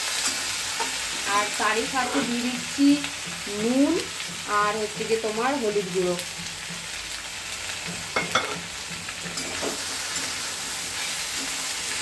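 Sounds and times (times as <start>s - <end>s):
vegetables sizzling in a wok: 0.0s - 12.0s
metal spatula scraping pan: 8.1s - 12.0s.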